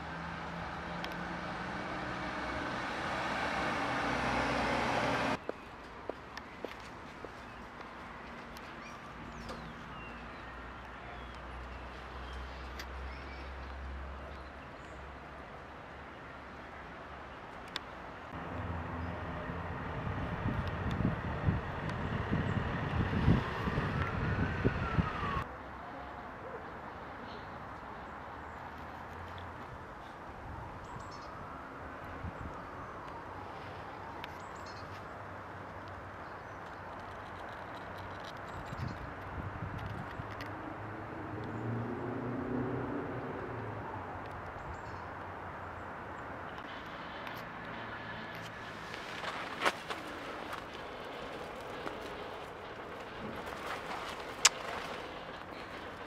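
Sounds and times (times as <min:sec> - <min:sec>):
vehicle engine passing: 0:00.0 - 0:05.4, 0:40.8 - 0:43.9
traffic hum: 0:00.0 - 0:56.0
wind buffeting microphone: 0:19.8 - 0:25.4, 0:38.5 - 0:40.4
distant siren: 0:23.2 - 0:25.5.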